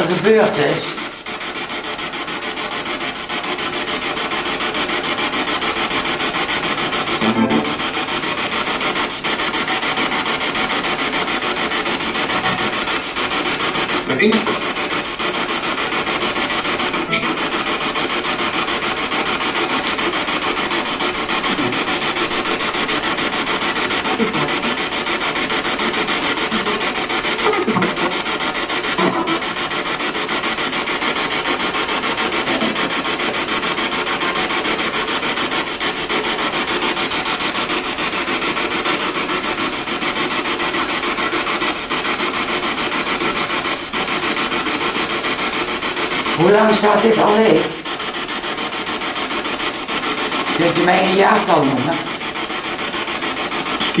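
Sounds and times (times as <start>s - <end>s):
chopped radio static: 0.0s - 54.0s.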